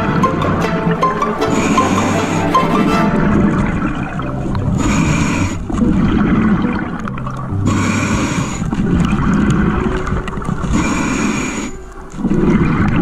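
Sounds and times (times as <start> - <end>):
bubbling exhalation: 0.0 - 13.0
regulator hissing inhalation: 10.8 - 11.8.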